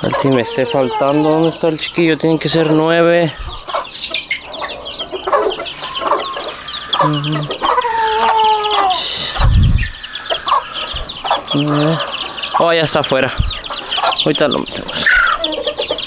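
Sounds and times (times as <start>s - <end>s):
chickens clucking: 0.0s - 16.0s
chicks peeping: 0.0s - 16.0s
chicken drawn-out call: 2.6s - 12.8s.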